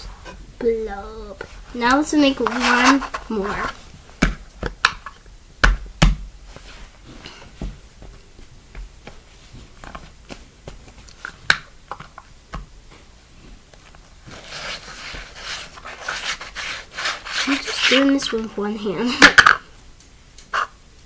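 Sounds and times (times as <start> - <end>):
plastic lid scraping and rubbing: 1.4 - 3.8, 14.3 - 18.5.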